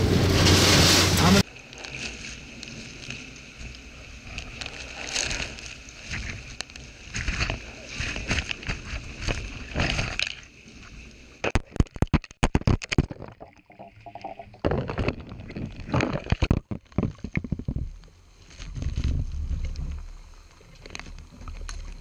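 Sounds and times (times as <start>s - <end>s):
wind and rain on microphone: 0.0s - 12.1s, 14.6s - 22.0s
camera knocking and rattling: 11.4s - 13.6s, 14.6s - 17.9s.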